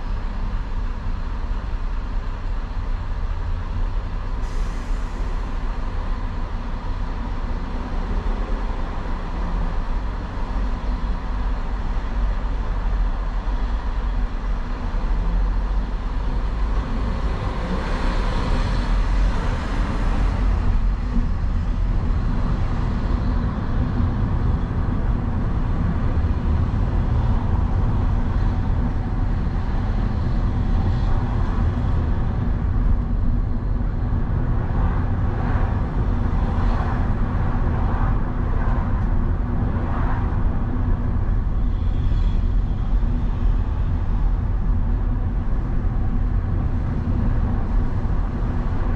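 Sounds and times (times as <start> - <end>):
road traffic rumble: 0.0 - 48.9
traffic hiss: 4.4 - 5.7.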